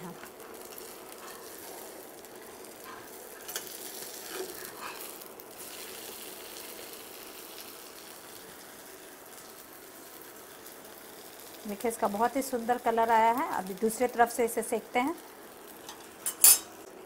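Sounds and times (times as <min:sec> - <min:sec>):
food sizzling in oil: 0:00.0 - 0:17.0
metal spatula scraping and tapping: 0:15.9 - 0:16.7.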